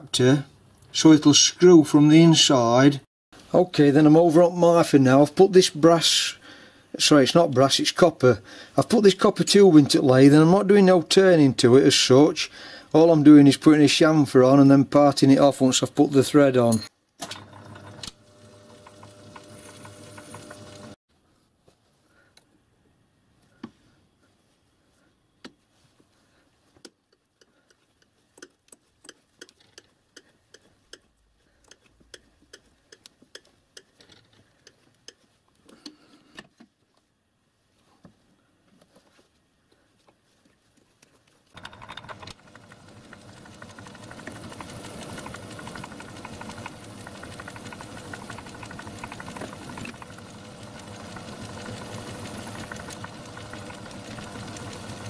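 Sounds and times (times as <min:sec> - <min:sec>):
lathe motor running: 0:17.2 - 0:21.0, 0:41.6 - 0:55.0.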